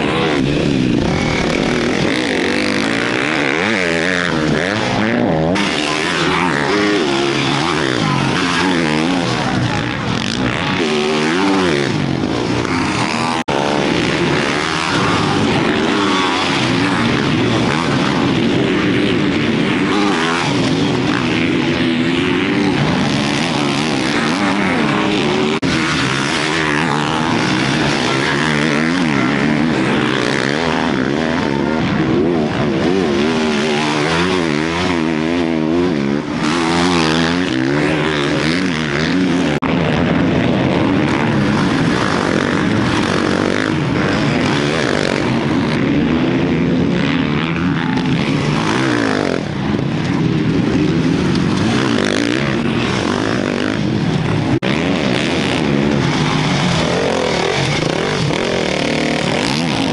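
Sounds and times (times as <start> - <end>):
dirt bike engines revving: 0.0 - 59.9.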